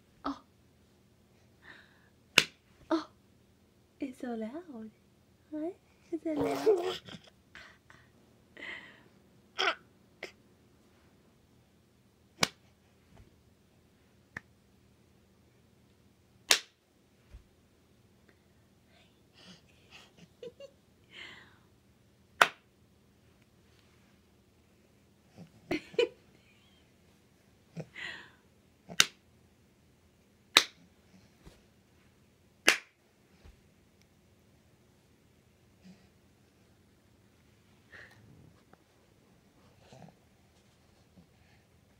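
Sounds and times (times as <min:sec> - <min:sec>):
sharp hand claps: 0:16.5 - 0:16.8, 0:22.4 - 0:22.6, 0:29.0 - 0:29.2, 0:30.6 - 0:30.8, 0:32.7 - 0:33.0.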